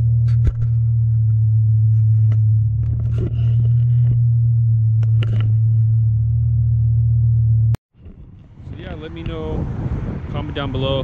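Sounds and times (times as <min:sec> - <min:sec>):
car engine idling: 0:00.0 - 0:07.8
camera knocks and scrapes: 0:00.2 - 0:00.8, 0:05.0 - 0:05.8.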